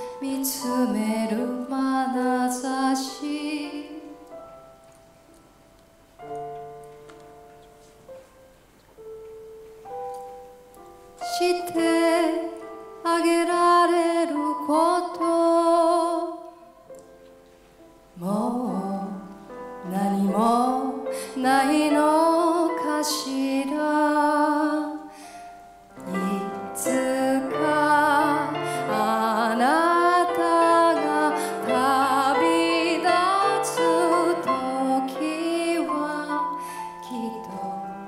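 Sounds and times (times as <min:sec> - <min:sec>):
woman singing: 0:00.0 - 0:04.4, 0:11.2 - 0:16.7, 0:18.2 - 0:25.1, 0:26.0 - 0:38.0
grand piano: 0:00.0 - 0:38.0.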